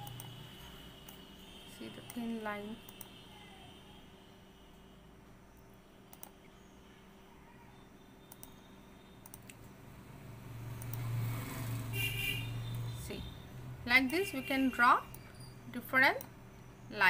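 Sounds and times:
computer mouse buttons clicking: 0.0 - 0.4, 6.1 - 6.4, 8.3 - 8.6, 9.2 - 9.6, 10.8 - 11.1
faint background hum: 0.0 - 17.0.

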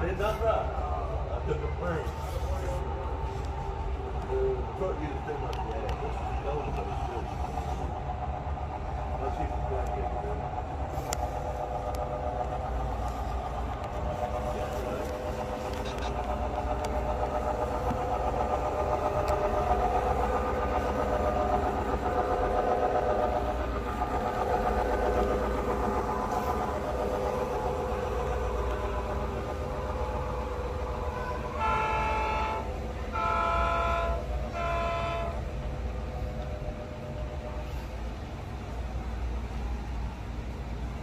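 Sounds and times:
model diesel engine sound: 0.0 - 41.0
locomotive horn blasts: 31.1 - 35.5.

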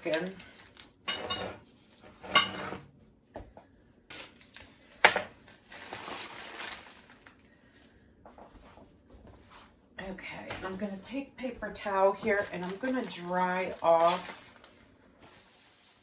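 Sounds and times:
plastic crinkling and tearing: 0.0 - 1.0, 4.1 - 7.5, 12.2 - 16.0.

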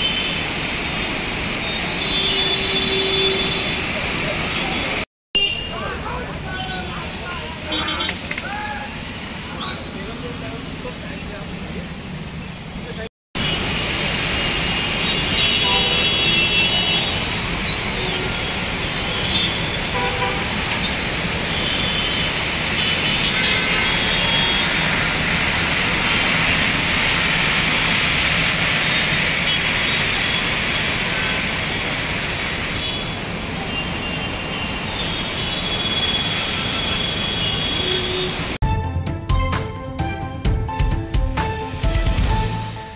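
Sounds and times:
traffic on wet road: 0.0 - 38.6
vehicle horns honking: 1.7 - 3.9, 5.3 - 6.0, 6.6 - 8.3, 14.7 - 18.5, 19.1 - 20.6, 21.5 - 25.1, 33.7 - 38.6.

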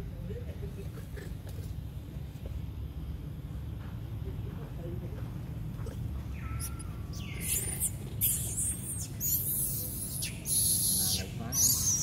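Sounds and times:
steady low hum: 0.0 - 12.0
monkeys shrieking: 6.4 - 12.0.

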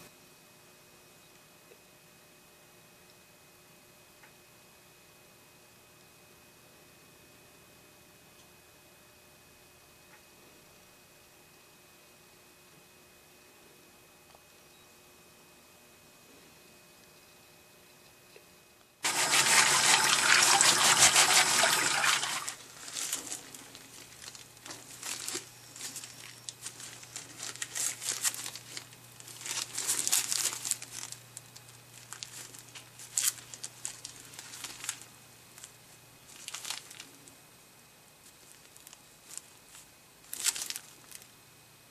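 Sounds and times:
tap water running: 19.0 - 22.8
plastic gloves crinkling: 19.0 - 37.4, 38.2 - 41.4.

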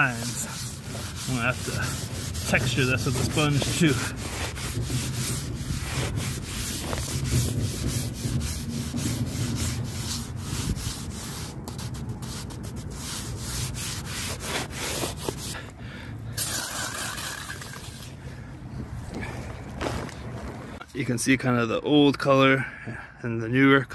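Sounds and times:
sponge scrubbing wet mortar: 0.0 - 15.6.

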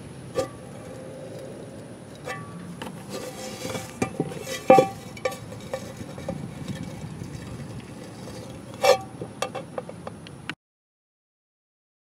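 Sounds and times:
metal plates knocking and ringing: 3.6 - 7.6.

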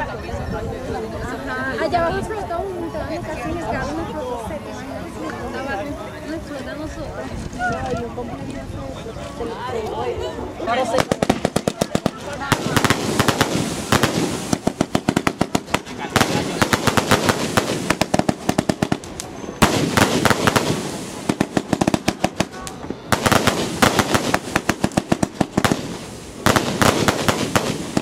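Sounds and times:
fireworks bursting: 10.7 - 28.0
fireworks crackling pops: 10.7 - 28.0.

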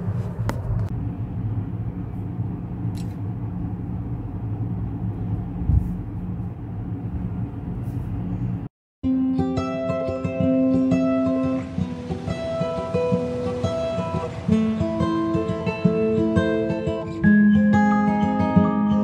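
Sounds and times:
low rumbling background noise: 0.0 - 8.7.

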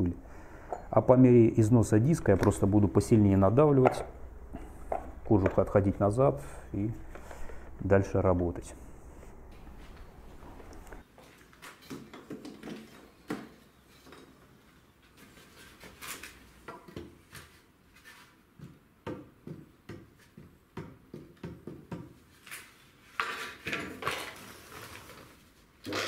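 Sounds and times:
tools knocking and rattling: 3.7 - 5.8.

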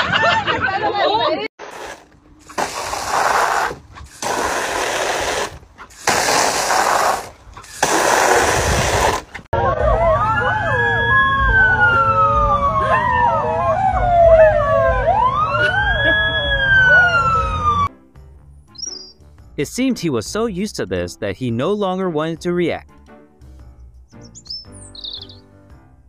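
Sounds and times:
hose nozzle spraying water: 1.6 - 9.5
dogs howling: 9.6 - 17.7.

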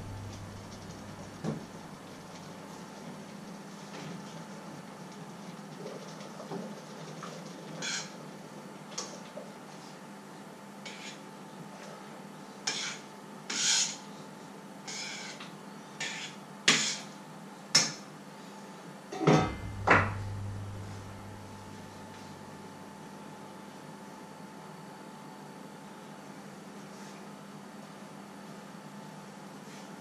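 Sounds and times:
faint steady hum: 0.0 - 5.2, 18.2 - 29.6.

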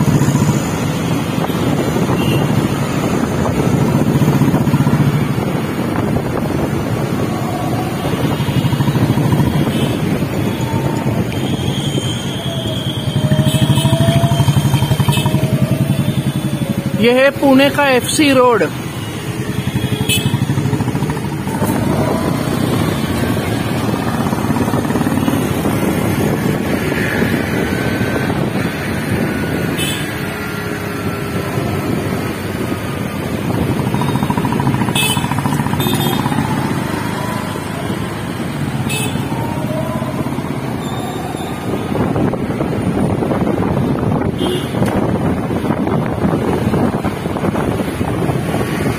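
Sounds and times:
wind rush: 0.0 - 13.4, 21.3 - 29.8, 36.4 - 48.9
city traffic: 0.0 - 48.9
motorcycle engine running: 6.7 - 10.7, 13.0 - 17.0, 18.8 - 27.5, 33.1 - 39.7.

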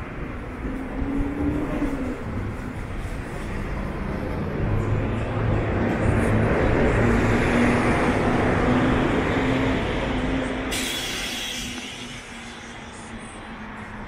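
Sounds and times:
sudden hiss: 10.7 - 13.1.

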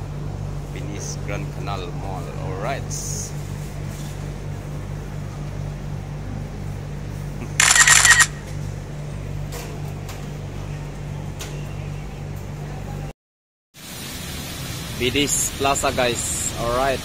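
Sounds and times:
steady low hum: 0.0 - 13.1.

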